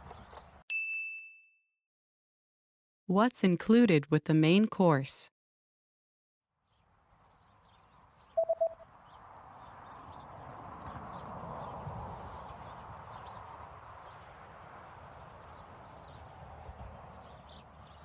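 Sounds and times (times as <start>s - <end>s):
small birds chirping: 6.7s - 14.3s, 15.0s - 18.0s
electronic beeps: 8.4s - 8.8s.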